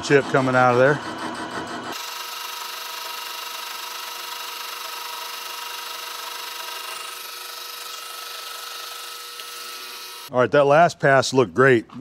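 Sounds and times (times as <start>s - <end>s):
lathe humming and whining: 0.0s - 10.3s.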